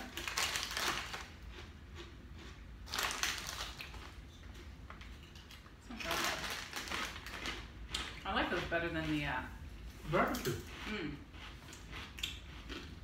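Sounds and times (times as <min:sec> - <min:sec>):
chip bag rustling: 0:00.0 - 0:01.4, 0:02.9 - 0:04.2, 0:06.0 - 0:07.7
potato chips being crunched: 0:00.0 - 0:01.6, 0:02.8 - 0:04.2, 0:05.9 - 0:07.6.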